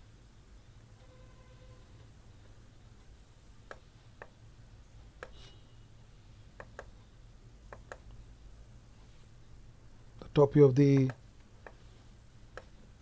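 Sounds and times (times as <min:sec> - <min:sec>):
low steady hum: 0:00.0 - 0:13.0
computer mouse clicks: 0:03.6 - 0:04.4, 0:06.6 - 0:07.0, 0:07.7 - 0:08.2, 0:10.9 - 0:11.8, 0:12.5 - 0:12.8.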